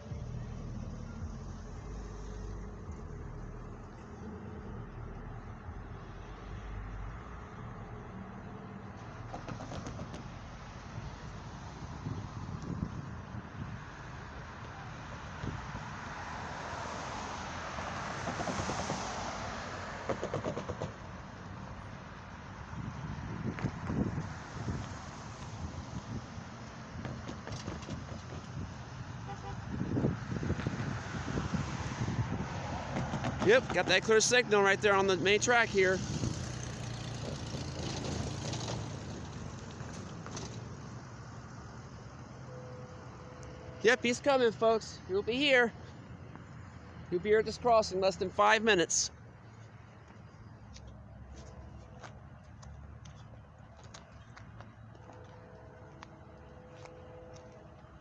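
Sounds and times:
car tyre noise: 0.0s - 58.0s
vehicle engine hum: 0.0s - 58.0s
outdoor rumble: 29.9s - 43.8s.

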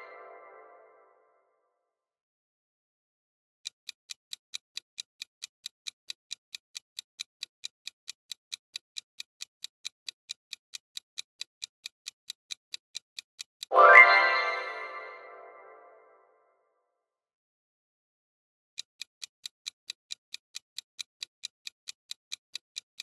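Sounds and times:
clock ticking: 3.6s - 15.1s, 18.8s - 23.0s
loud ringing chime: 13.7s - 15.8s.

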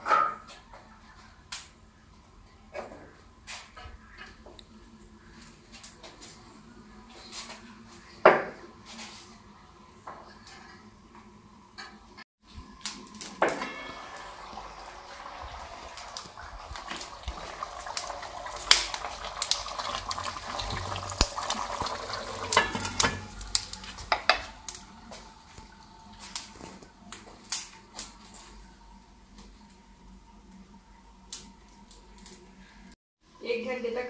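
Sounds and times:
food sizzling in metal pot: 12.5s - 28.8s.

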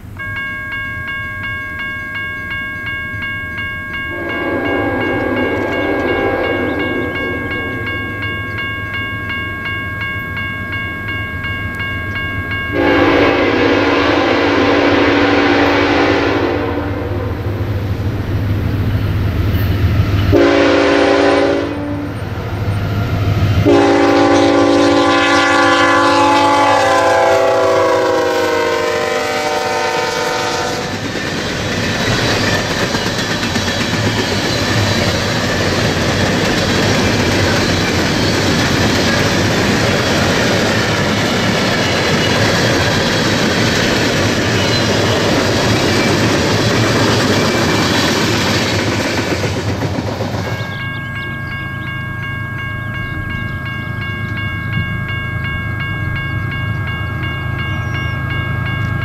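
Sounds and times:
low locomotive engine rumble: 0.0s - 59.0s
train air horn blasts: 4.1s - 7.9s, 12.7s - 17.5s, 20.3s - 22.2s, 23.6s - 31.0s
train wheels clacking on rail joints: 30.4s - 51.3s.

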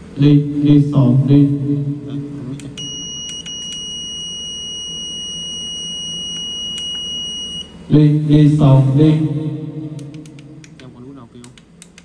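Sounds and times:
steady high-pitched beep: 2.8s - 7.8s.

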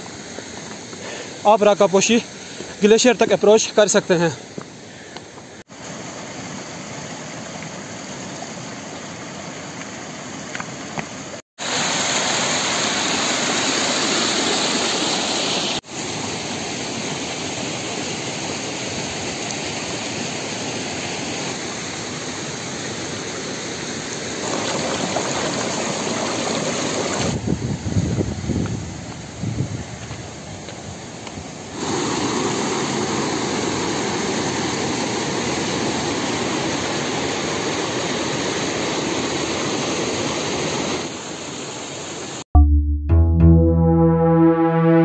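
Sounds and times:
fast mountain stream rushing: 11.6s - 23.4s, 24.0s - 27.4s, 31.7s - 42.4s.

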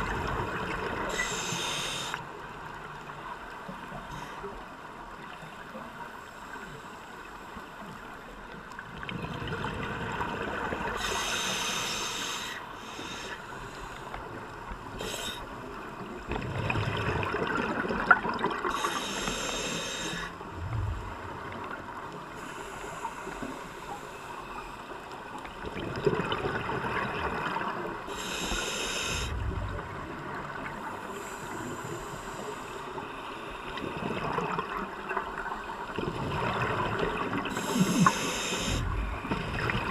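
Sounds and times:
regulator hiss: 1.1s - 2.2s, 10.9s - 14.2s, 15.0s - 15.5s, 18.7s - 20.3s, 28.1s - 29.4s, 37.5s - 39.2s
exhaled bubbles gushing underwater: 16.2s - 18.8s, 25.6s - 27.8s, 35.8s - 39.9s.

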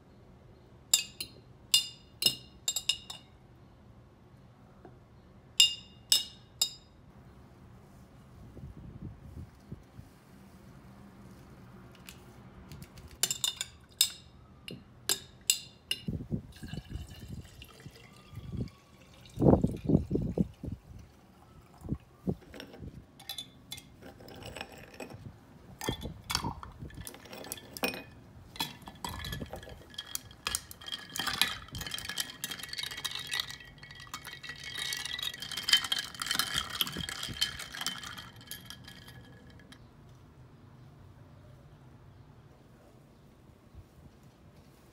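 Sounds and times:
liquid pouring into a container: 16.5s - 22.0s.

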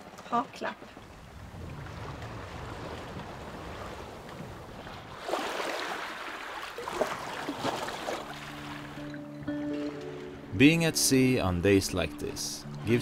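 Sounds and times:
water splashing along hull: 0.0s - 10.5s
wind rumble on microphone: 1.0s - 5.2s.

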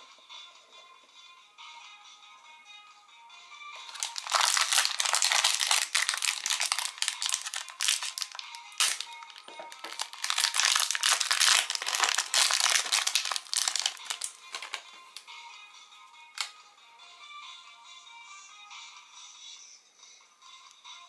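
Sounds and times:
faint background music: 0.0s - 21.0s
plastic wrapper crinkling: 3.9s - 14.9s.

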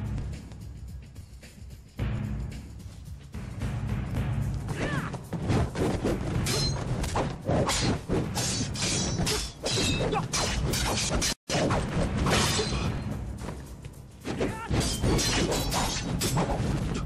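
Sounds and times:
fight hits whacks and swishes: 5.4s - 12.9s.

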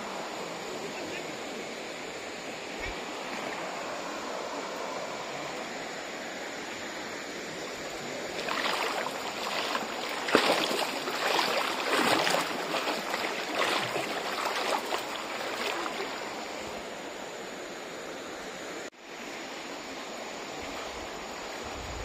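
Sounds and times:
stream rushing: 0.0s - 22.0s
water splashing and sloshing: 6.5s - 17.4s.

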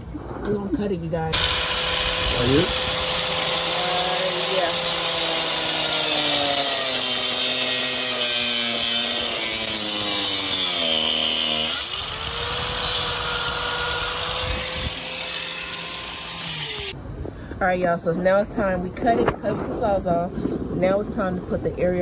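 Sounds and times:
disc cutter cutting plastic pipe: 1.4s - 17.0s.

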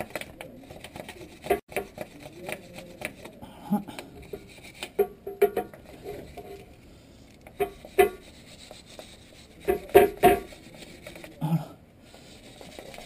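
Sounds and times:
wire brush scrubbing metal: 1.2s - 3.4s, 7.6s - 11.4s.

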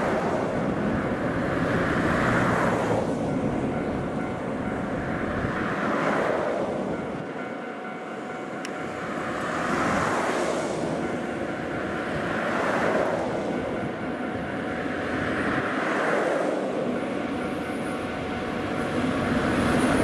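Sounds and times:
cars passing: 0.0s - 7.6s, 8.2s - 20.0s
diesel railcar drone: 0.0s - 20.0s.

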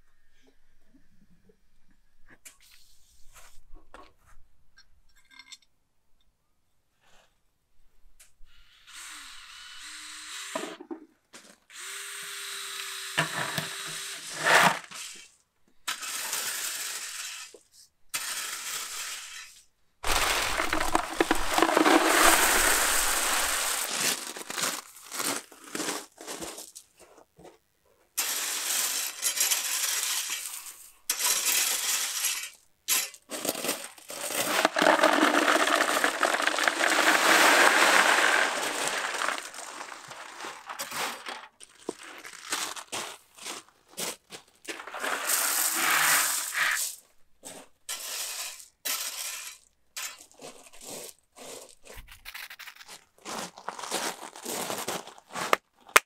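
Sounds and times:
broom scrubbing wet concrete: 20.0s - 24.6s, 34.3s - 41.4s, 44.8s - 47.0s.

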